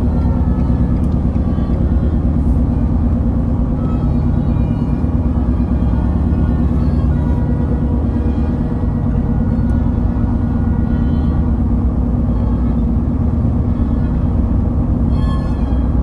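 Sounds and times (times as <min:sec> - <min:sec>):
car interior road noise: 0:00.0 - 0:16.0.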